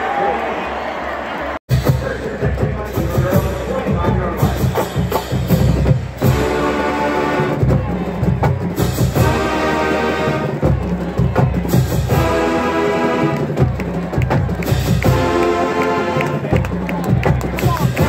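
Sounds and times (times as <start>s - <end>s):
drumline playing fast beat: 1.7s - 18.0s
brass section held chords: 6.2s - 7.8s, 9.1s - 10.7s, 12.1s - 13.6s, 15.0s - 16.5s.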